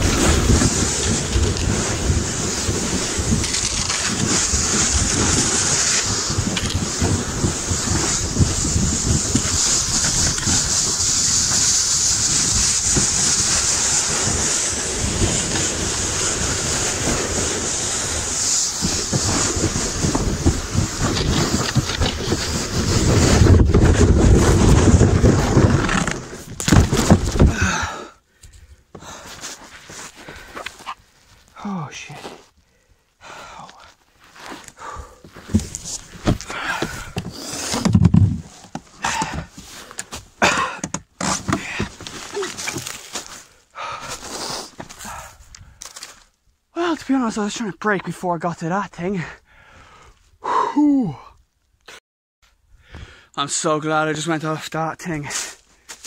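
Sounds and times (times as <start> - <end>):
wind buffeting microphone: 0.0 - 26.0
hull scraping on snow: 0.0 - 27.6, 34.2 - 40.0.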